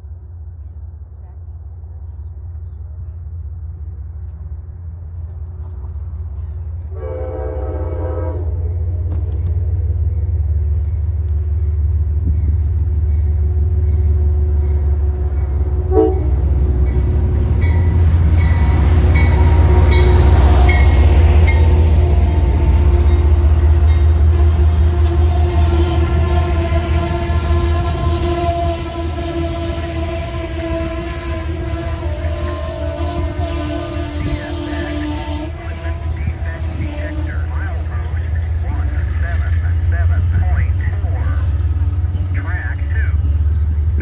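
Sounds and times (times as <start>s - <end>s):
train rumble: 0.0s - 44.0s
wheel and rail noise: 0.1s - 44.0s
train horn blast: 6.9s - 8.9s, 15.7s - 17.0s, 18.3s - 39.0s.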